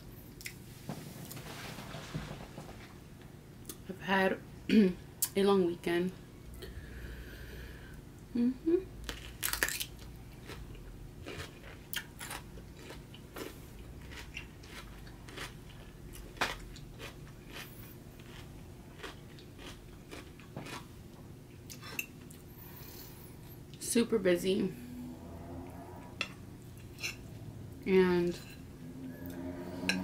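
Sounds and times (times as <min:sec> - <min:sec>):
wet crunchy chewing: 0:09.0 - 0:20.9.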